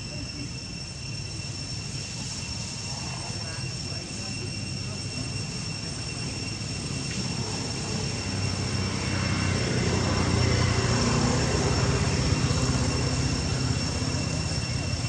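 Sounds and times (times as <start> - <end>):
steady high-pitched tones: 0.0 - 15.0
distant engine passing: 5.9 - 15.0.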